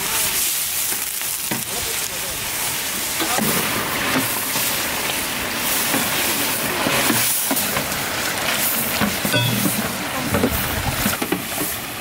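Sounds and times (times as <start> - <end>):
curry boiling and sizzling: 0.0 - 12.0
metal ladles stirring: 3.3 - 10.6.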